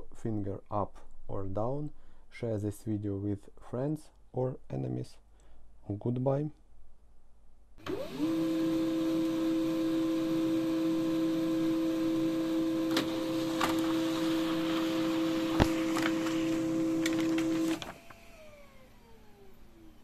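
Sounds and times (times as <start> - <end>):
printer whine spinning down: 7.8 - 20.0
printer clicks: 12.9 - 18.1.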